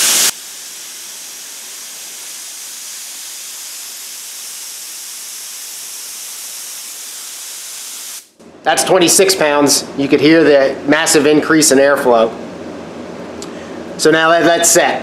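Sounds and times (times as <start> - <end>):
compressed air hissing from spray gun: 0.0 - 8.4.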